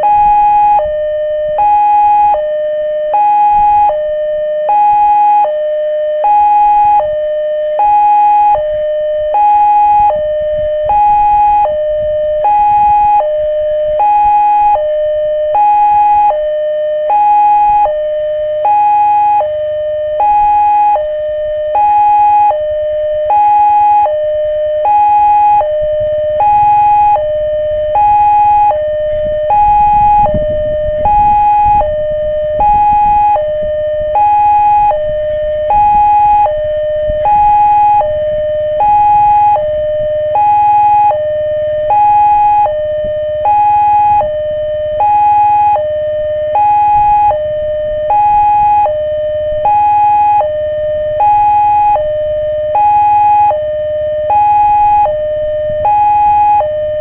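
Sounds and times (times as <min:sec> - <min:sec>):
level crossing warning alarm: 0:00.0 - 0:57.0.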